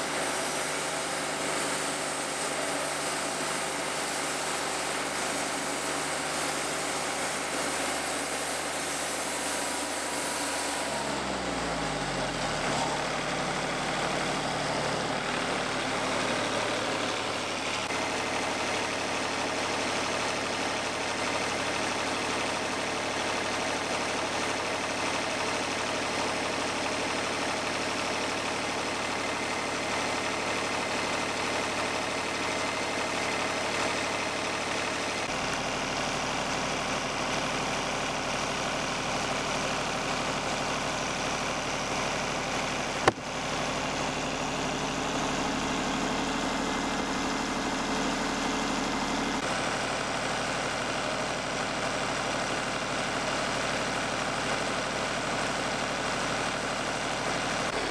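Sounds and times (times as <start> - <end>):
sawmill engine humming: 0.0 - 57.9.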